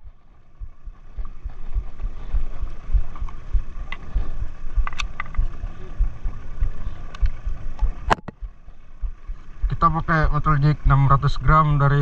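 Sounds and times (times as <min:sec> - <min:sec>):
low irregular thumping: 0:00.0 - 0:11.7
faint steady hum: 0:00.0 - 0:12.0
sharp clicks: 0:04.8 - 0:05.6, 0:06.6 - 0:08.6.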